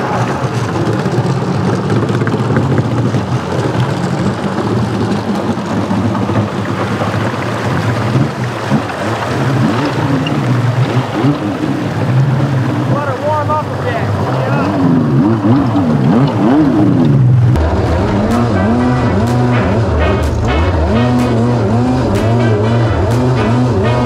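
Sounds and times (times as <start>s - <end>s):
boat engine running: 0.0s - 24.0s
water rushing: 0.0s - 24.0s.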